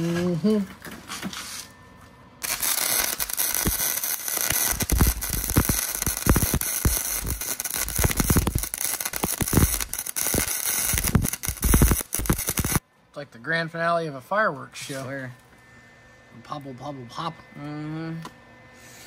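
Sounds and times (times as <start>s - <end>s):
welding arc crackling and popping: 2.4s - 12.8s.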